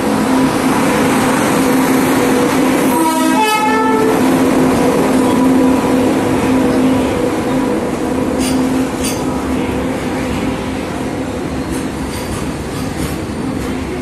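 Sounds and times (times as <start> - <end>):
locomotive hum: 0.0 - 14.0
train wheels rumbling on rail: 0.0 - 14.0
train horn note: 2.8 - 4.3.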